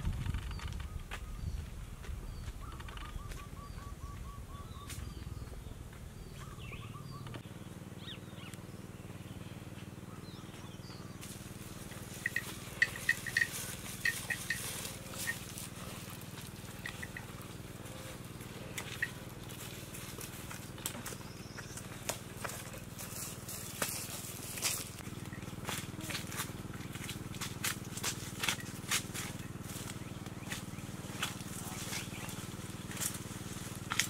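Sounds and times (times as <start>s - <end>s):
birds calling: 0.3s - 34.0s
bird chirping trill: 11.9s - 15.9s, 16.6s - 19.5s
sharp high clinks: 12.1s - 15.7s.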